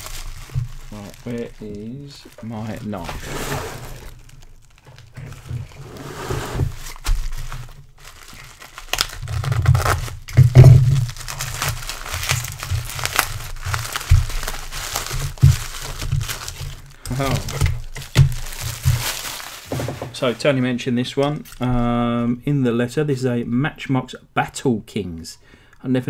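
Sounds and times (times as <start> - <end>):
bubble wrap crinkling: 0.0 - 20.0.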